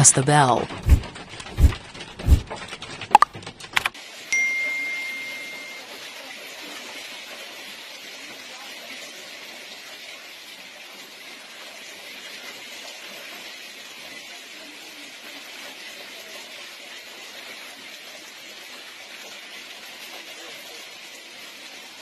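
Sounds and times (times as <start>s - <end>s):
hail hitting street and cars: 1.0s - 4.3s.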